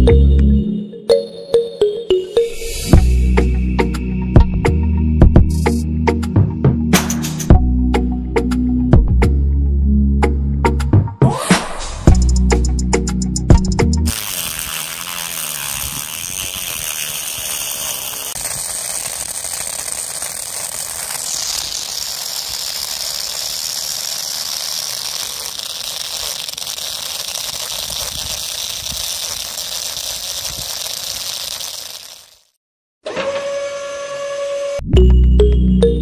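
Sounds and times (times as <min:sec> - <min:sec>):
auger rattling in sand: 0:14.0 - 0:32.5
small motor whining: 0:14.0 - 0:34.8.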